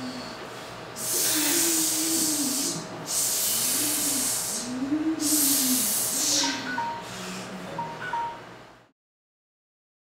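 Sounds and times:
hissing rushes of breath: 0.0s - 7.6s
low voice moaning: 1.2s - 3.0s, 3.7s - 6.1s.

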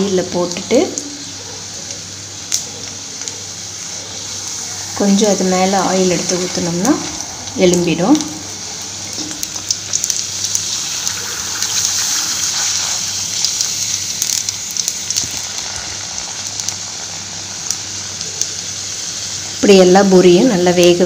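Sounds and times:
food deep-frying in oil: 0.0s - 21.0s.

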